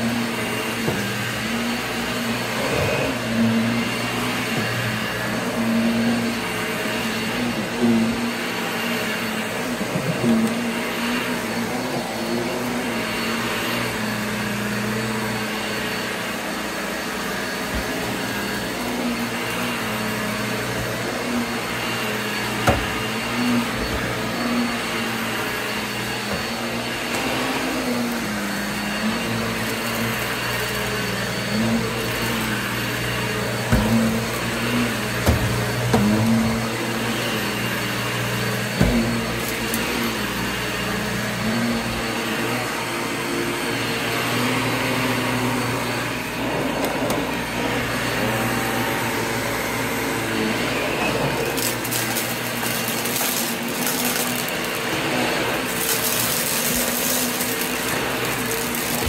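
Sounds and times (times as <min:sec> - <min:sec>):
vacuum cleaner on carpet: 0:00.0 - 0:59.0.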